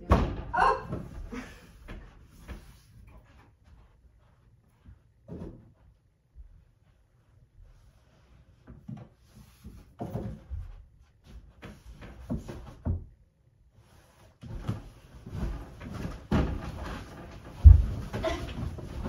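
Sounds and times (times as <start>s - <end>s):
thumps and rustling on a bed: 14.4s - 19.0s.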